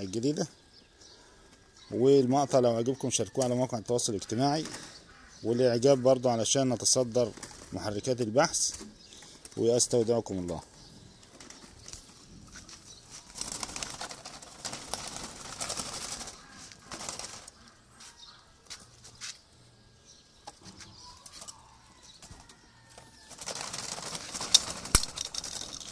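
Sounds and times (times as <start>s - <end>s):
pigeons flapping wings: 4.6s - 5.0s, 7.2s - 7.8s, 11.2s - 17.8s, 22.2s - 25.9s.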